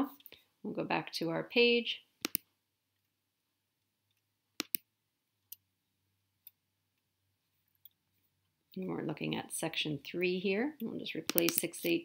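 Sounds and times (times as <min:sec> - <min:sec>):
computer mouse clicks: 0:02.2 - 0:02.5, 0:04.6 - 0:04.9, 0:10.8 - 0:12.0.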